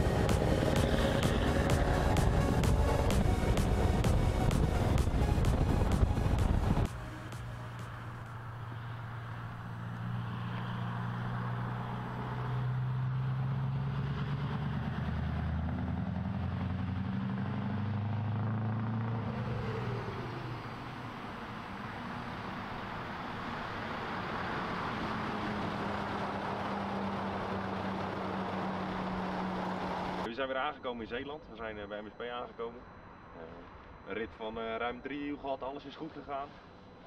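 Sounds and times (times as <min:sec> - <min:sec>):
diesel lorry engine droning: 0:00.0 - 0:30.4.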